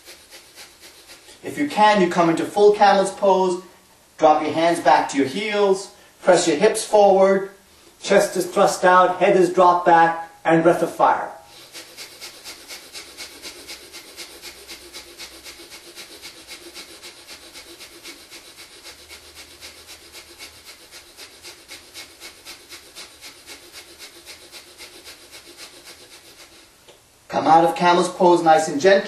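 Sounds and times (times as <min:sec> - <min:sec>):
rapid forceful nasal breathing: 0:00.0 - 0:04.1, 0:11.3 - 0:27.0.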